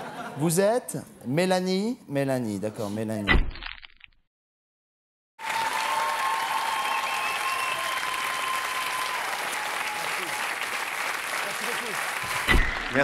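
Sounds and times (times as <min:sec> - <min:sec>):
audience applauding: 0:05.4 - 0:13.0
long steady whistle: 0:06.8 - 0:09.2.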